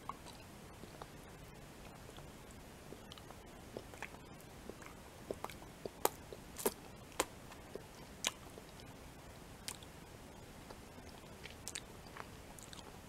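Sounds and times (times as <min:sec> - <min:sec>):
lip smacks and wet clicks: 0:10.7 - 0:12.9.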